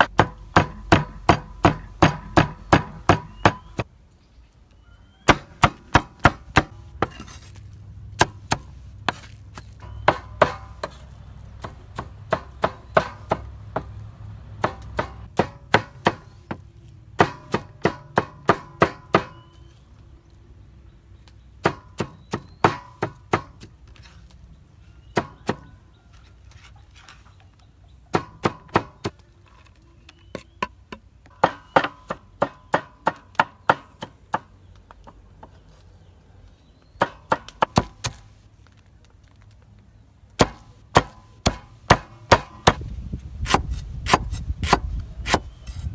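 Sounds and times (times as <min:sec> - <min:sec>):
cleaver chopping on wooden block: 0:00.0 - 0:03.8, 0:14.6 - 0:16.3, 0:40.4 - 0:42.8, 0:43.4 - 0:45.5.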